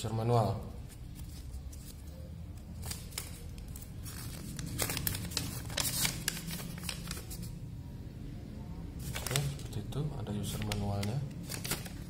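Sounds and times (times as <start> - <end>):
paper crinkling and rustling: 0.8 - 7.5, 9.0 - 9.8, 10.4 - 12.0.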